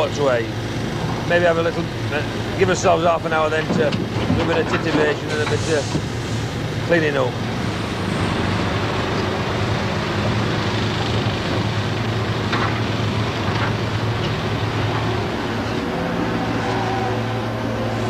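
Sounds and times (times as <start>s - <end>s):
excavator diesel engine running: 0.0s - 18.0s.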